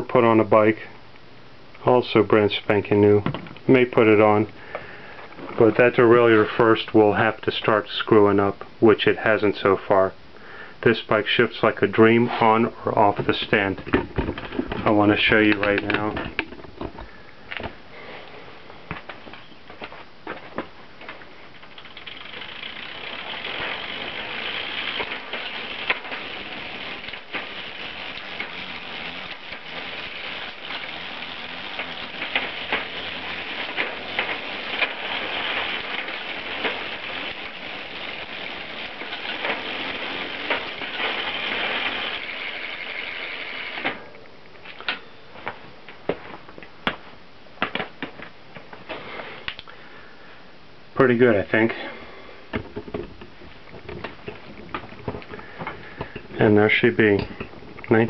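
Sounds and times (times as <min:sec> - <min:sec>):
bike chain whirring: 0:21.5 - 0:43.9.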